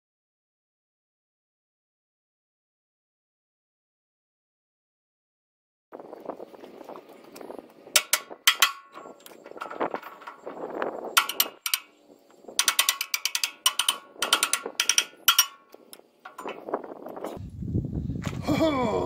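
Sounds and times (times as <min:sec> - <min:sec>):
handling and scraping noise: 0:06.0 - 0:17.5
ratchet wrench clicking: 0:08.0 - 0:10.4, 0:11.2 - 0:11.9, 0:12.6 - 0:16.8.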